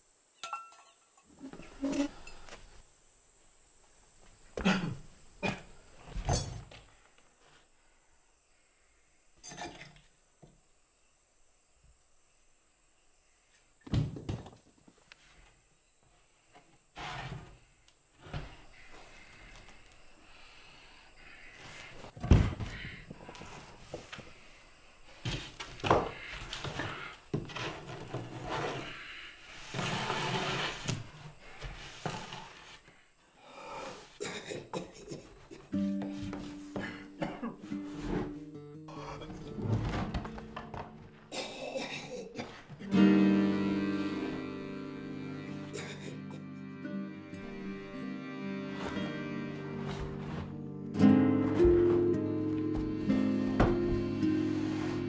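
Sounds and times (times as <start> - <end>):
stone scraping on wood: 29.6 - 31.0.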